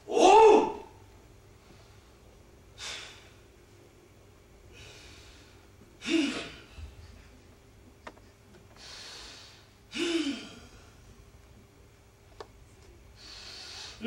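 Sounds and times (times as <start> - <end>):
man breathing: 2.8 - 3.4, 4.7 - 7.0, 8.7 - 11.1, 13.2 - 14.0.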